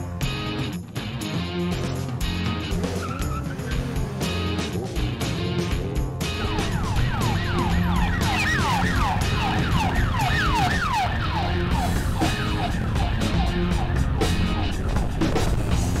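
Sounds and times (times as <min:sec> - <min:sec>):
music with steady beat: 0:00.0 - 0:16.0
yelping siren: 0:06.3 - 0:14.9.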